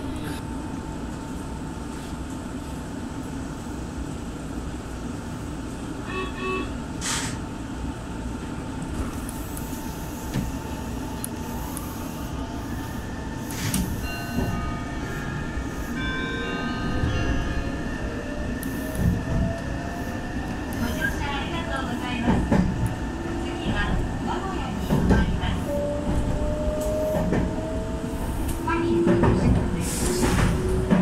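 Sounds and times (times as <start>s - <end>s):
train wheels rumbling on rail: 6.7s - 31.0s
high ringing tones: 12.8s - 18.6s.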